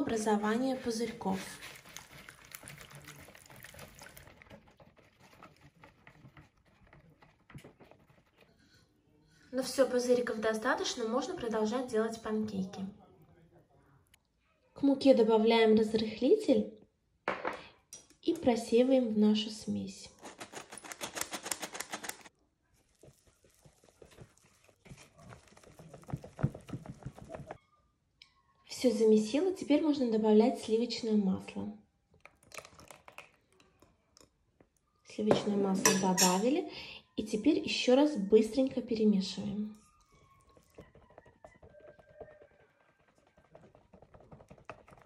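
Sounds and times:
wire whisk beating batter: 0:00.1 - 0:08.9, 0:20.2 - 0:27.6, 0:39.9 - 0:45.0
flour sifter clicking: 0:20.3 - 0:22.3.

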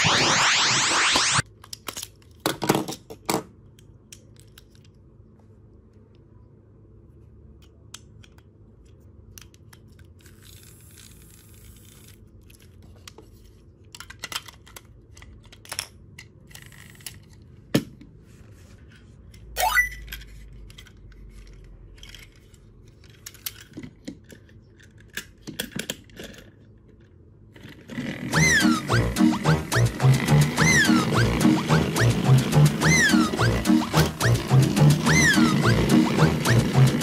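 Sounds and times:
short rising squeak: 0:00.0 - 0:01.4, 0:28.3 - 0:37.0
plastic toy clicks and rattles: 0:07.9 - 0:17.4, 0:20.0 - 0:28.2.

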